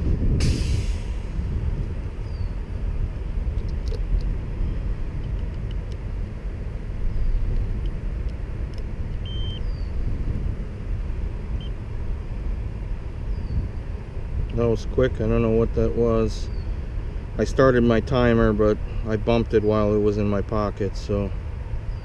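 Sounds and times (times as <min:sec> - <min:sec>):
low outdoor rumble: 0:00.0 - 0:22.0
short faint beep: 0:09.2 - 0:09.6.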